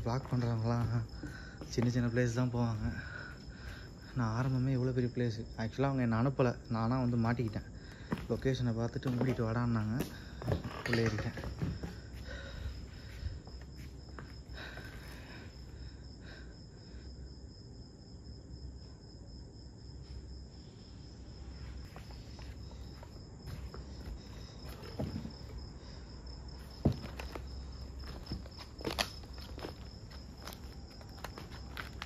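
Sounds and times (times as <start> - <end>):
footsteps on rubble: 0.0 - 4.7, 7.4 - 12.6, 21.8 - 25.7, 26.6 - 32.0
crickets chirping: 0.0 - 32.0.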